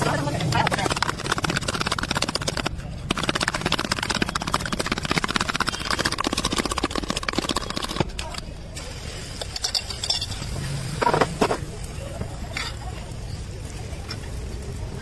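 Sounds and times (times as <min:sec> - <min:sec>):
spoon clinking in steel cup: 0:09.5 - 0:10.5.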